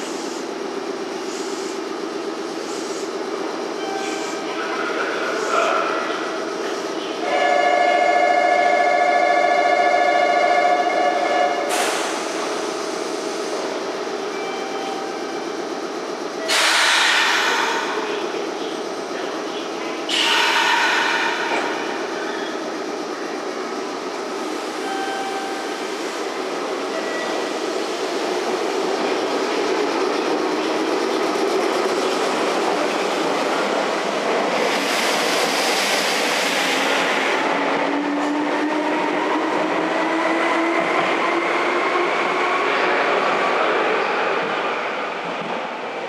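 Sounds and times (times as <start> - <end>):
burst of hiss: 20.1 - 21.6.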